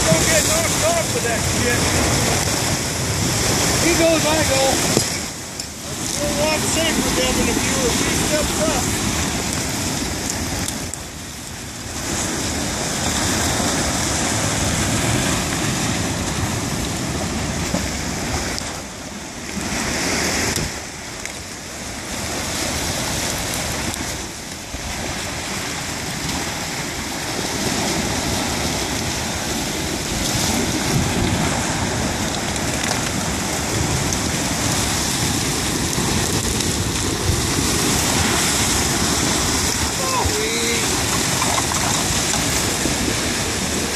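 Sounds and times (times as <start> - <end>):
river ice grinding and hissing: 0.0 - 11.1, 25.0 - 43.9.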